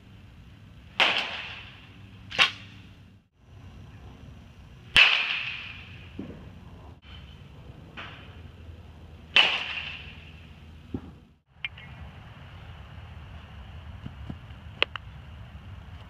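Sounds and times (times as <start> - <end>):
bat cracking baseball: 1.0 - 2.8, 4.9 - 6.5, 9.3 - 10.2.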